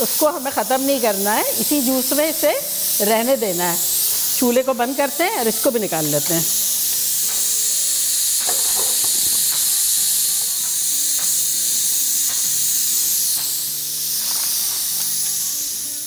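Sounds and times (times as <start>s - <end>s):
loud steady hiss: 0.0s - 16.0s
soft background music: 0.0s - 16.0s.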